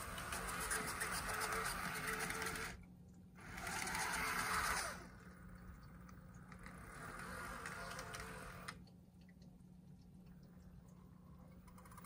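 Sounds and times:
model train motor whirring: 0.0 - 2.8, 3.4 - 5.4, 6.4 - 8.8
wheels clicking on rails: 0.0 - 2.8, 3.4 - 8.8.

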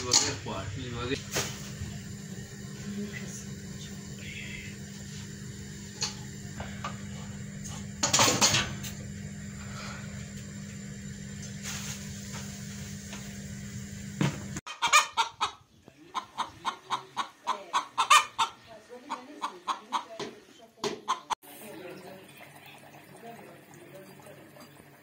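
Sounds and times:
steady low hum: 0.0 - 14.6
hen clucking: 14.7 - 21.4.

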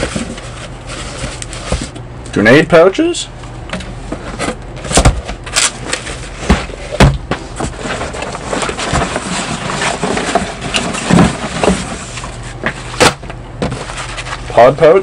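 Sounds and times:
hands rummaging in cardboard box: 0.0 - 2.0, 4.2 - 14.6
cardboard box knocks and thumps: 4.9 - 5.4, 6.4 - 12.0, 12.6 - 14.0.

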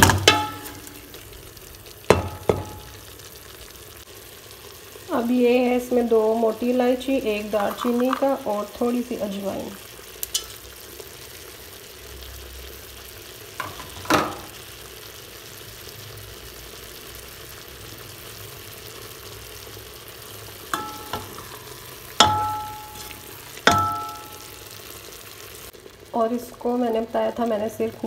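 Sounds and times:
spatula clanking against pot: 0.0 - 0.9, 20.7 - 24.4
meat sizzling in a pot: 0.0 - 28.0.

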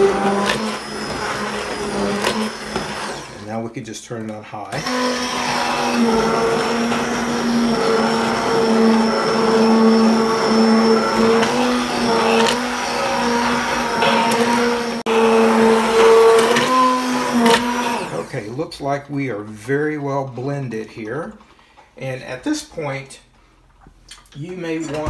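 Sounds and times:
stick blender motor humming: 0.0 - 3.5, 4.6 - 18.5.

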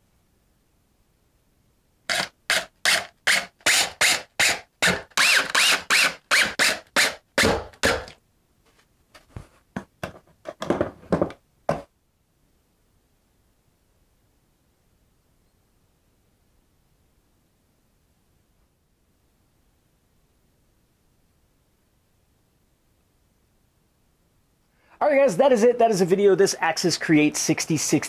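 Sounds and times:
power drill driving screws: 2.1 - 8.2.

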